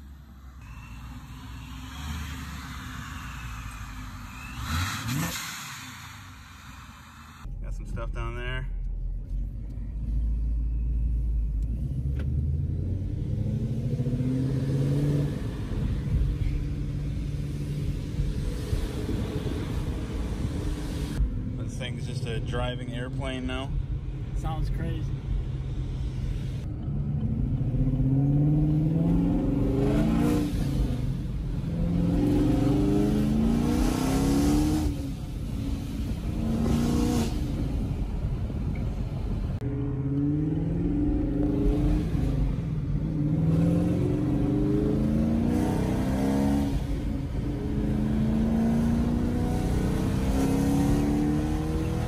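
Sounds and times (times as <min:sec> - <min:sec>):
supercharged car engine accelerating: 0:00.6 - 0:07.5, 0:11.7 - 0:22.2, 0:26.9 - 0:38.1, 0:39.6 - 0:52.0.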